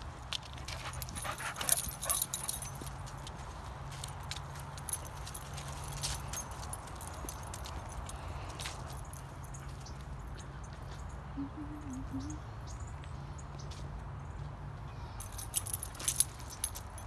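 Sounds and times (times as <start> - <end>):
rustling of dry leaves: 0.0 - 10.0.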